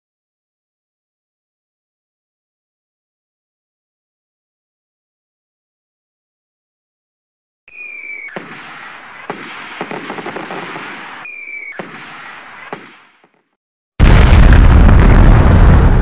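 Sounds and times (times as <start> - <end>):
firework whistle: 7.7 - 13.1
fireworks crackling with pops: 7.7 - 13.4
loud explosion with deep rumble: 14.0 - 16.0.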